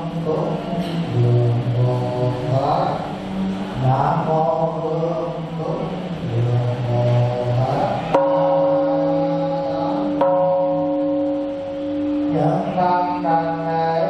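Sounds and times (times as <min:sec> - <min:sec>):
bowl bell ringing: 0:08.1 - 0:13.7.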